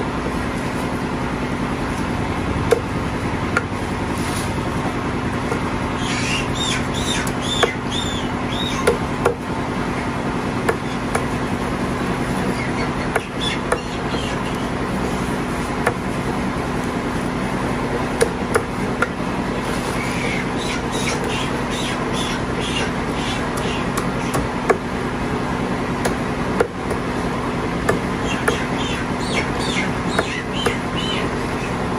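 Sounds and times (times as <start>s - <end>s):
cleaver chopping on wooden block: 2.6s - 2.9s, 7.2s - 7.8s, 8.7s - 9.4s, 10.7s - 11.4s, 13.1s - 14.0s, 18.2s - 19.2s, 23.6s - 24.8s, 26.0s - 27.0s, 27.8s - 28.7s, 30.1s - 30.8s.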